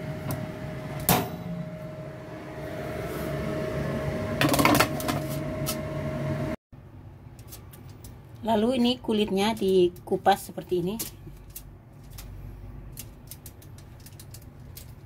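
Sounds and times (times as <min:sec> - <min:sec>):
oven fan humming: 0:00.0 - 0:06.6.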